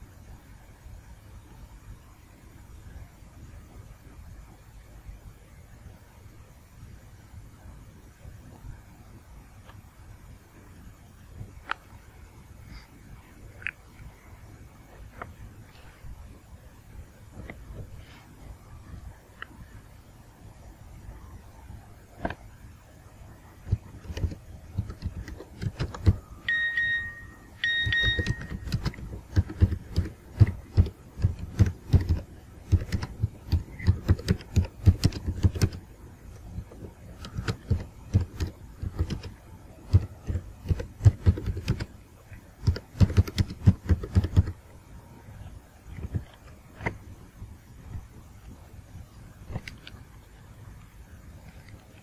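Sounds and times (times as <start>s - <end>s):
keyboard typing: 23.6s - 42.0s, 42.6s - 44.6s
short high beeps: 26.5s - 28.7s.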